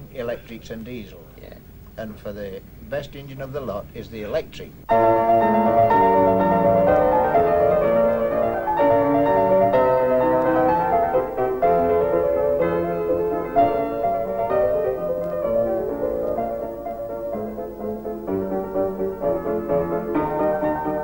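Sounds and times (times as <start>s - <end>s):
piano music with chords: 4.9s - 21.0s.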